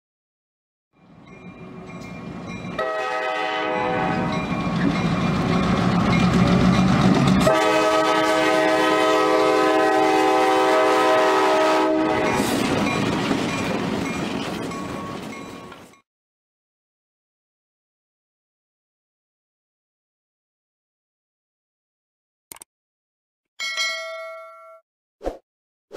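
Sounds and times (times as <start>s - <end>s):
locomotive air horn: 2.8s - 4.4s, 7.4s - 12.5s.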